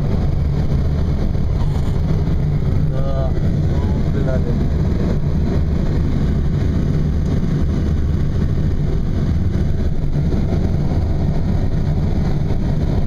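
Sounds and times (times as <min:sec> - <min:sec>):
air rushing around cockpit: 0:00.0 - 0:13.0.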